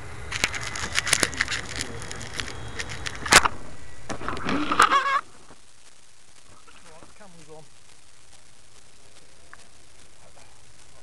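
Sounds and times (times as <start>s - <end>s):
camera handling rustling: 0.3s - 3.5s
person speaking: 0.5s - 3.2s.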